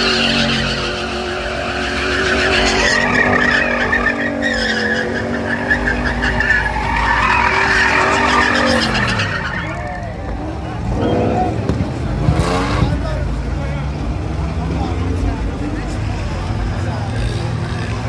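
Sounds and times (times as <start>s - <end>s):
tyres squealing: 0.0s - 11.6s
car engine revving: 0.0s - 18.0s.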